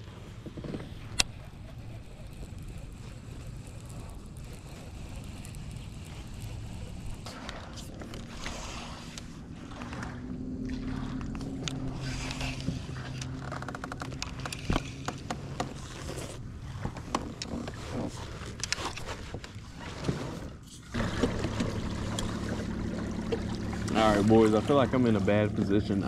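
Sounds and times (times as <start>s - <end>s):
pedal drive whirring: 0.4s - 10.4s.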